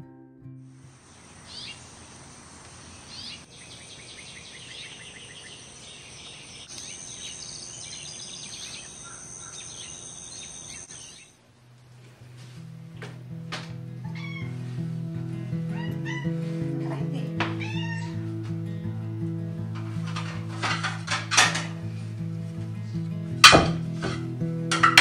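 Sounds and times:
high insect drone: 0.8s - 11.3s
birds chirping: 0.8s - 11.4s.

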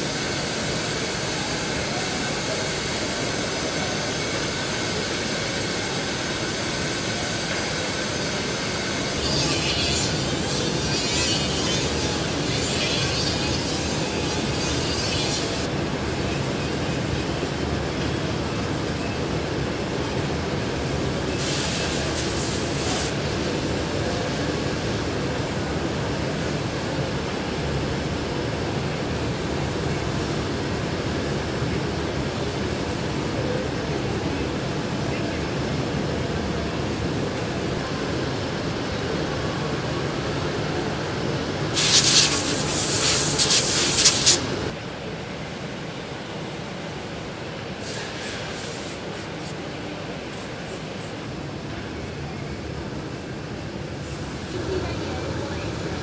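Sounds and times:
workshop hum: 0.0s - 56.0s
compressed air tool hissing: 41.8s - 44.7s.

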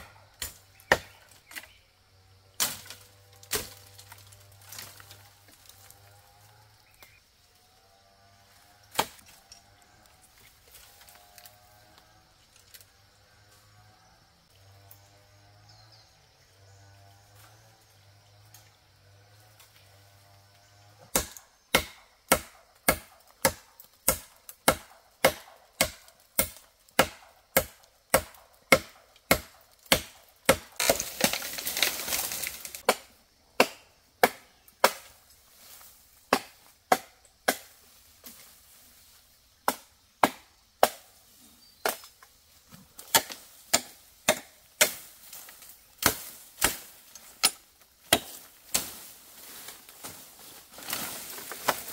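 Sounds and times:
blade chopping bamboo: 0.4s - 1.8s, 8.9s - 9.2s, 21.1s - 35.1s, 36.3s - 37.8s, 39.6s - 41.1s, 43.0s - 49.1s
bamboo stem falling through leaves: 2.6s - 6.1s, 30.7s - 32.8s, 44.8s - 51.9s.

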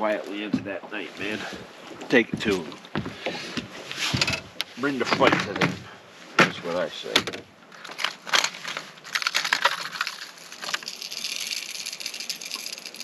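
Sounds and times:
crackling rustling handling noise: 3.7s - 13.0s.

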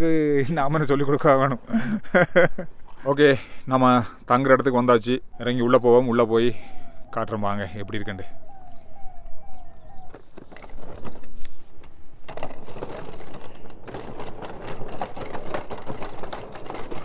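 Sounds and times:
falling bird calls: 3.9s - 11.9s, 12.8s - 14.7s
wooden boards creaking and knocking: 9.9s - 17.0s.

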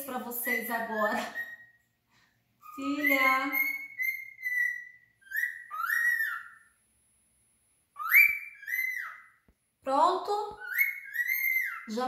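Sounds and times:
cockatiel whistling: 0.3s - 1.9s, 2.6s - 6.8s, 7.9s - 9.5s, 10.5s - 12.0s.

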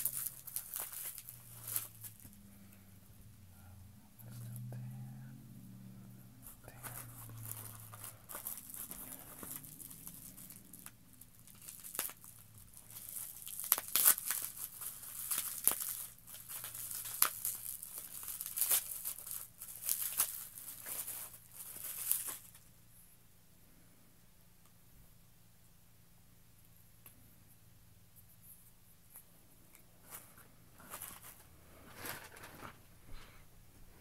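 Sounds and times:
plastic wrapping crinkling: 0.0s - 2.5s, 6.4s - 22.7s, 30.0s - 32.9s.

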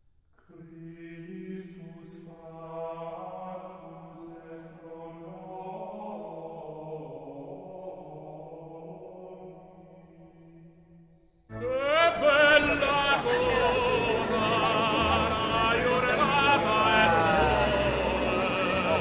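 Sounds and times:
slow chant-like music: 0.4s - 19.0s
low drone: 11.5s - 19.0s.

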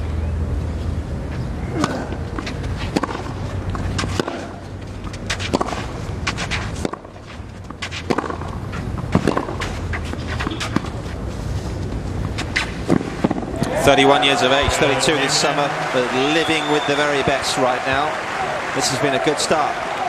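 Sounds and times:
tennis ball struck with racquets: 1.7s - 11.0s, 12.3s - 18.1s.

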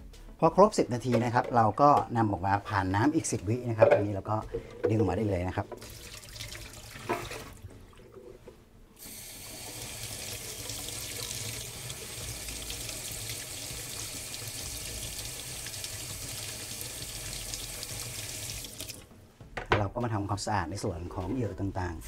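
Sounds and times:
tap water splashing into sink: 5.7s - 8.0s, 9.5s - 19.0s.

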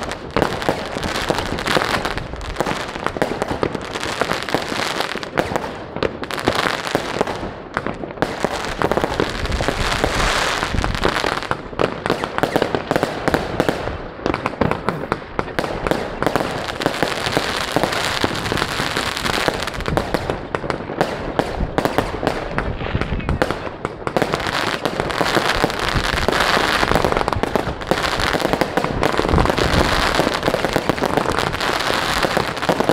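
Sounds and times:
fireworks and firecrackers bangs: 0.0s - 32.9s.

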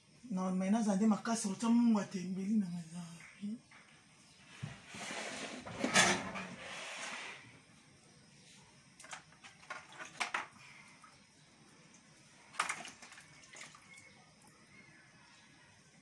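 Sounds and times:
water splashing in plastic basin: 9.0s - 11.2s, 11.9s - 14.2s.

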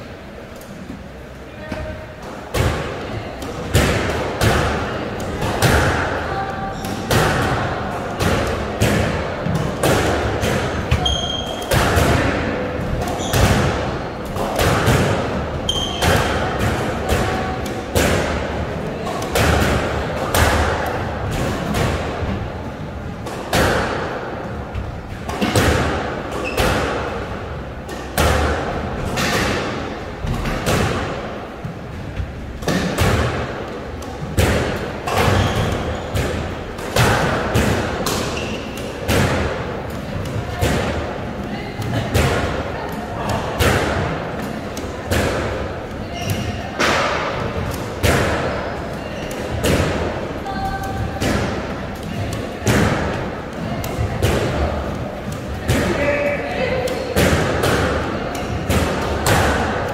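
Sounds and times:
squash ball smacking rackets and walls: 0.0s - 59.9s.

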